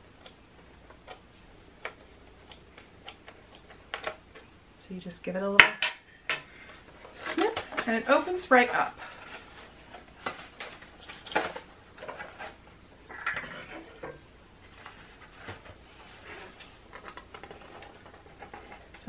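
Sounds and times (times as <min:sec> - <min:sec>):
cardboard and paper rustling: 0:07.1 - 0:12.6, 0:14.6 - 0:19.0.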